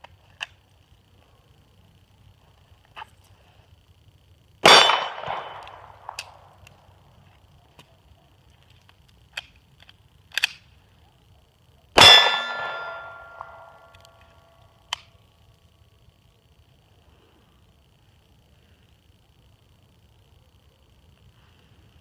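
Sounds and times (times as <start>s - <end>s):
bullet ringing off steel target: 4.6s - 6.0s, 12.0s - 13.9s
pistol shots: 4.6s - 6.3s, 12.0s - 13.7s
pistol reloading clicks: 4.6s - 6.8s, 8.6s - 10.8s, 12.9s - 15.2s.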